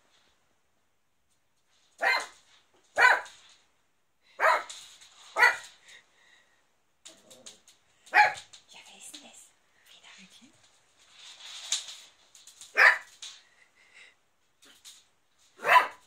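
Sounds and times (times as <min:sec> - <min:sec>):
puppy barking: 0:02.0 - 0:02.4, 0:03.0 - 0:03.3, 0:04.4 - 0:04.7, 0:05.4 - 0:05.7, 0:08.1 - 0:08.5, 0:12.8 - 0:13.1, 0:15.6 - 0:16.0.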